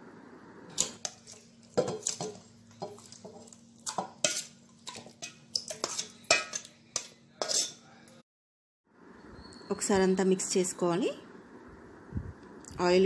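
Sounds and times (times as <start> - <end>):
spoon scraping steel bowl: 0.7 - 7.8
faint steady hum: 8.9 - 13.0.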